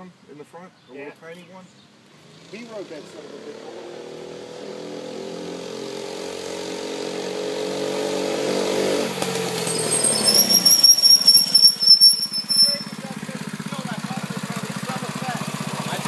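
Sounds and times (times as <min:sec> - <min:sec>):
mini bike engine: 0:02.2 - 0:16.0
high-pitched squeal: 0:09.6 - 0:13.2.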